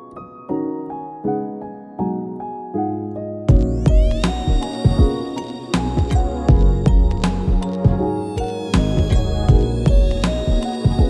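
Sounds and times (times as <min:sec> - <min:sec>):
soft keyboard chords: 0:00.0 - 0:11.0
bass: 0:03.5 - 0:05.2, 0:05.8 - 0:11.0
drum beat: 0:03.5 - 0:05.2, 0:05.8 - 0:08.1, 0:08.8 - 0:11.0.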